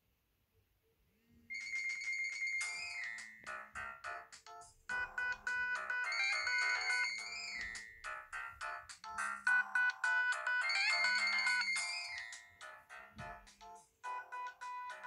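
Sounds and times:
phone ringtone tune: 1.5s - 15.0s.

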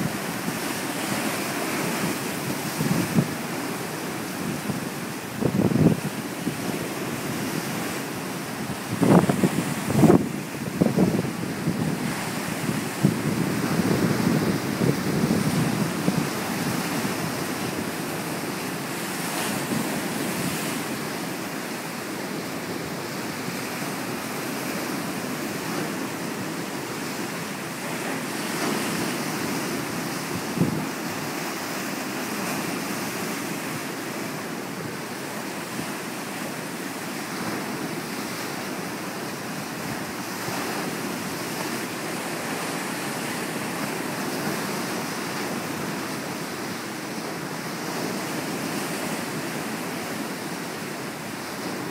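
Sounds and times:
waves breaking on rocky shore: 0.0s - 51.9s
wind buffeting microphone: 1.8s - 18.4s, 28.4s - 31.5s.

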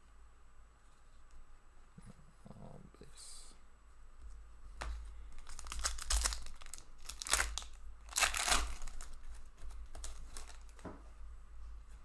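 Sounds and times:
foil wrapper tearing and crinkling: 5.4s - 10.8s.

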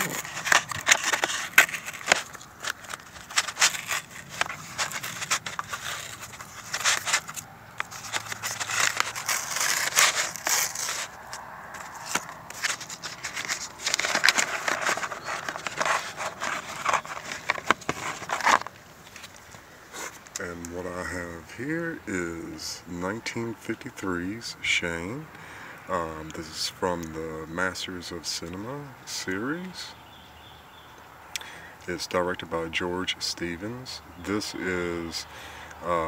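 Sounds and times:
cardboard tearing: 0.0s - 20.4s.

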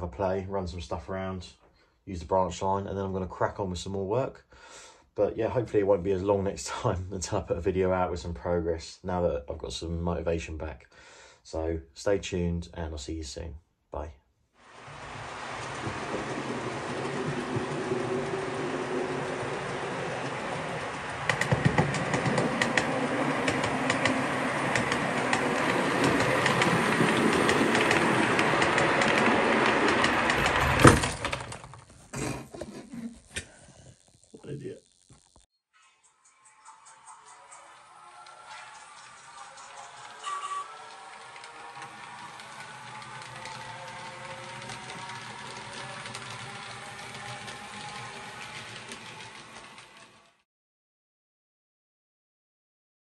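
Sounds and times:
model train wheels rumbling: 14.7s - 31.9s, 38.2s - 50.4s
clicks over rail joints: 15.0s - 32.0s.

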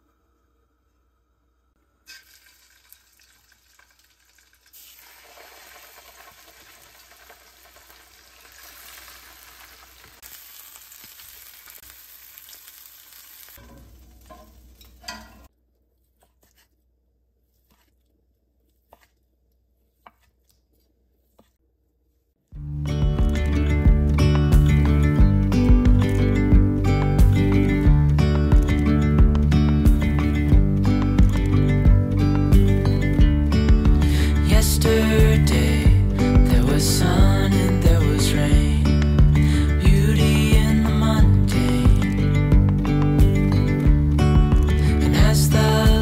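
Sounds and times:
fish sizzling in a frying pan: 2.1s - 14.8s.

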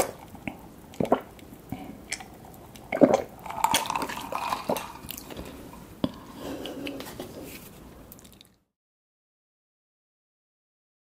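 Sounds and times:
person gulping a drink: 0.0s - 7.0s, 8.1s - 8.6s.

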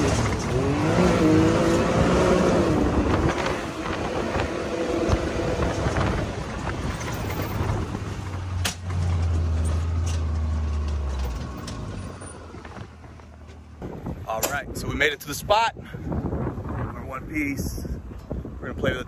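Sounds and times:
engine running: 0.0s - 14.6s
tyre and chassis rumble: 0.0s - 19.0s.

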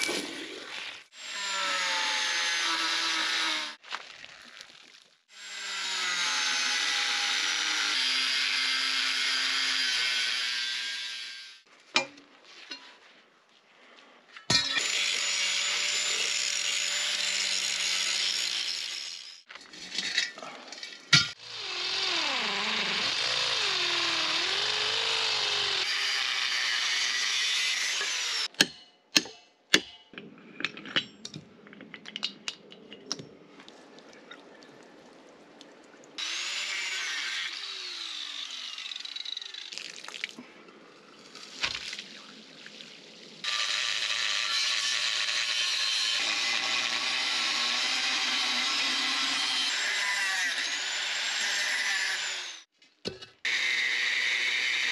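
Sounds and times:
angle grinder cutting steel: 5.4s - 11.7s, 14.6s - 19.5s, 21.3s - 28.5s, 36.2s - 39.7s, 43.4s - 52.7s, 53.5s - 54.9s.

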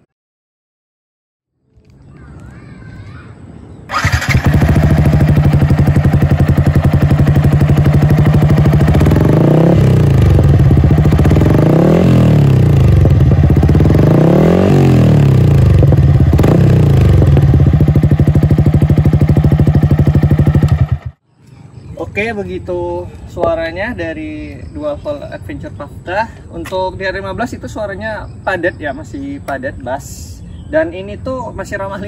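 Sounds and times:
motorcycle engine idling and revving: 3.9s - 21.3s.

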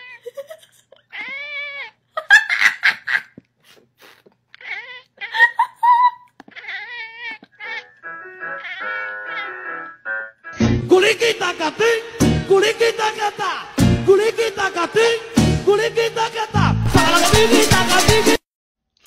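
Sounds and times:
cat meowing: 1.1s - 2.0s, 4.6s - 5.6s, 6.4s - 8.0s, 8.6s - 9.6s
background music: 8.0s - 18.4s.

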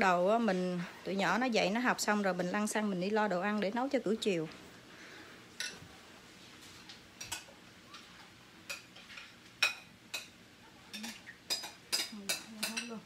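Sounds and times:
metal utensils clinking on cookware: 10.9s - 13.0s.

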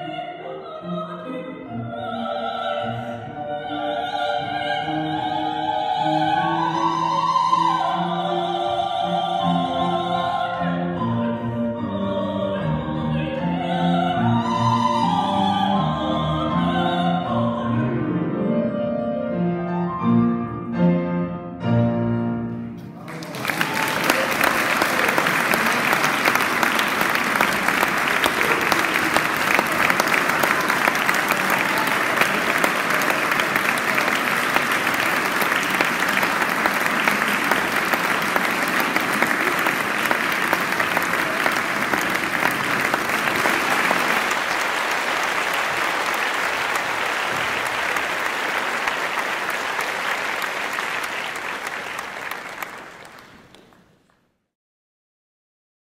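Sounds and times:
audience applauding: 22.9s - 54.2s.

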